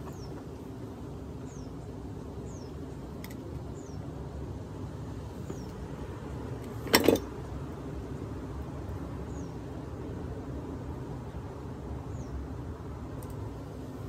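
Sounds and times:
tools clanking on metal housing: 6.8s - 7.3s.

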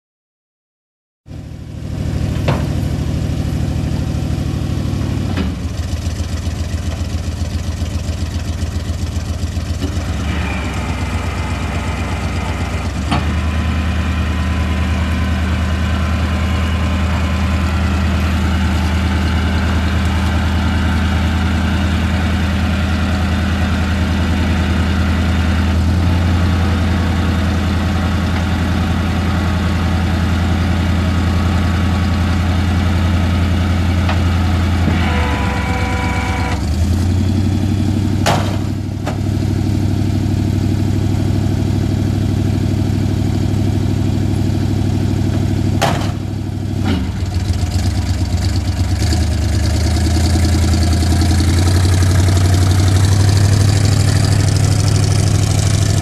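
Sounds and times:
truck engine running: 1.3s - 56.0s
hydraulic pump: 34.8s - 36.6s.

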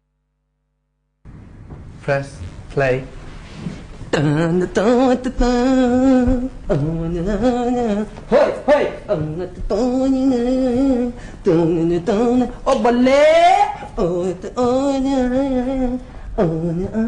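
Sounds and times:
man singing unaccompanied: 4.1s - 17.0s.

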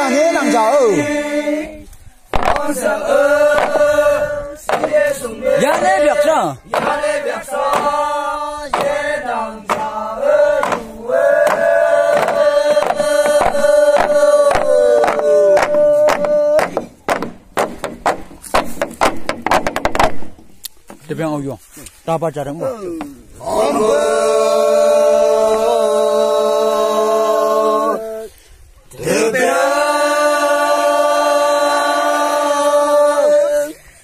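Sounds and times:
men chanting in unison: 0.0s - 17.0s, 22.7s - 33.9s
bamboo sticks knocking on tube: 2.3s - 2.9s, 4.7s - 5.0s, 8.7s - 9.0s, 10.6s - 21.0s.

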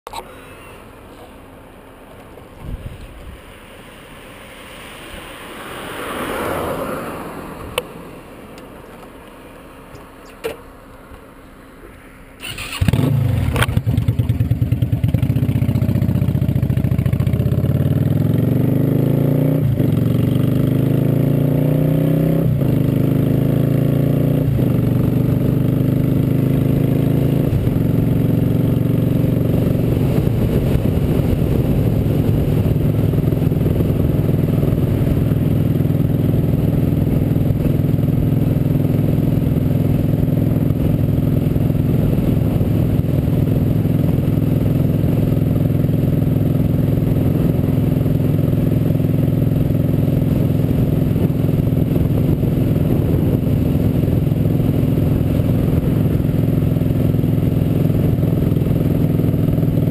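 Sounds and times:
motorcycle engine accelerating: 12.4s - 59.9s.

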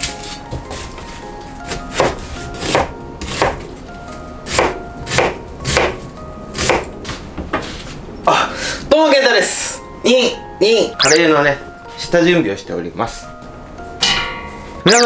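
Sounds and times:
knife chopping onion on board: 1.7s - 3.6s, 4.5s - 6.0s, 6.6s - 6.9s.

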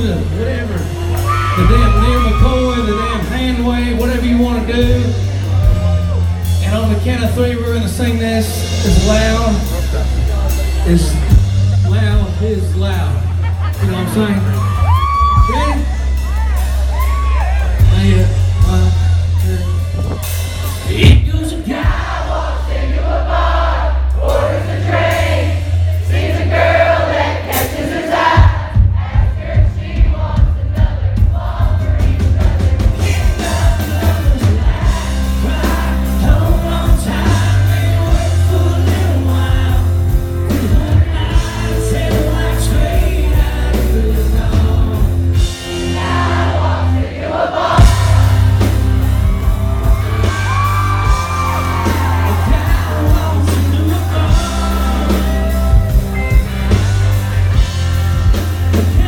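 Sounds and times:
crowd yelling: 0.0s - 7.0s, 13.5s - 39.8s, 45.6s - 59.0s
man singing lead: 0.0s - 13.1s, 31.4s - 46.6s, 49.2s - 59.0s
live country band playing: 0.0s - 59.0s.

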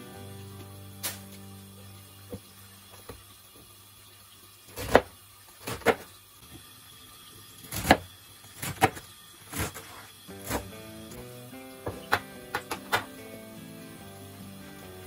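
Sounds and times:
knife chopping on cutting board: 4.8s - 6.1s, 7.7s - 10.7s.

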